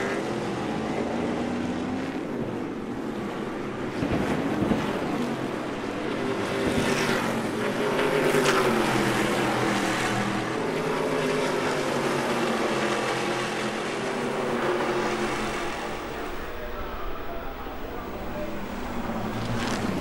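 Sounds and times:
racing truck engines accelerating: 6.4 - 20.0.

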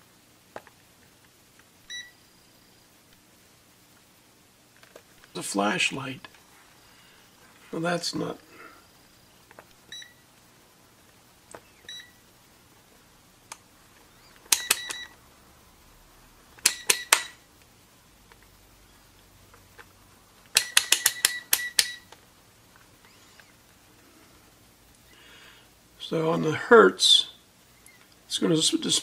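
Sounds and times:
rotary switch clicking: 14.5 - 15.0, 16.6 - 17.4, 20.5 - 22.0.

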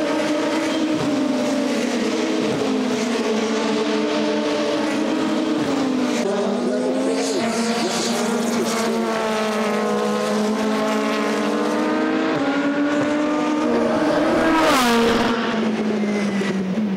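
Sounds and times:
race car engine at high revs: 0.0 - 16.9
race car passing close: 0.0 - 16.9.

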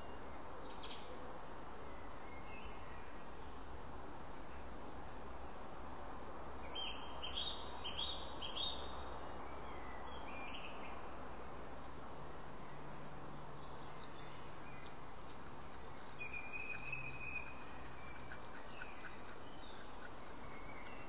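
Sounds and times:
background hiss: 0.0 - 21.0
bird chirping: 6.7 - 12.8, 13.5 - 21.0.

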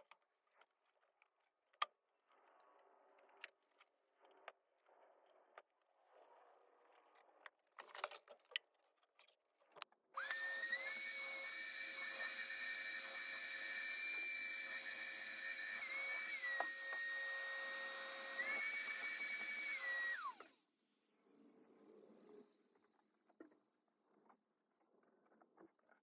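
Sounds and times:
power tool motor whining: 10.2 - 20.6.

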